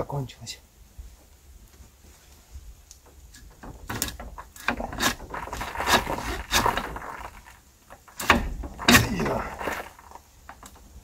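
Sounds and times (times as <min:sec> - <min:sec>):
metallic clicks and scrapes: 0:03.0 - 0:10.9.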